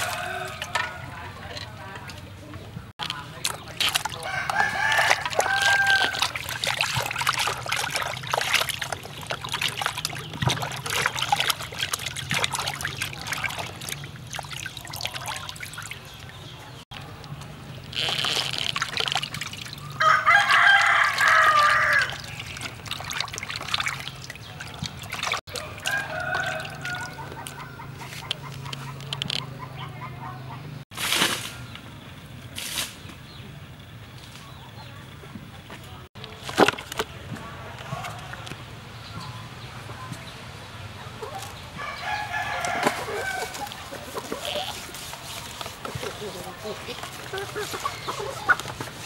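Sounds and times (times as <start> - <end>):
rooster crowing: 0.0 - 1.2, 4.2 - 6.3, 20.0 - 22.2, 25.6 - 27.8, 41.8 - 43.7
water splashing in a basin: 3.0 - 28.8, 36.2 - 38.6, 41.3 - 49.0.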